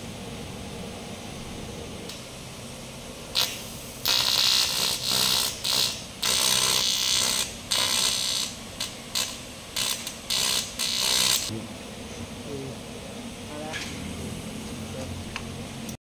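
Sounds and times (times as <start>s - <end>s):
arc welding crackling and hissing: 2.0s - 11.6s.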